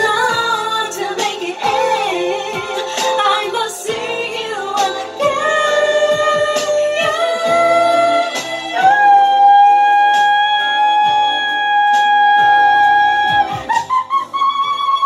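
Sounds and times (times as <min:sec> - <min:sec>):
woman singing: 0:00.0 - 0:15.0.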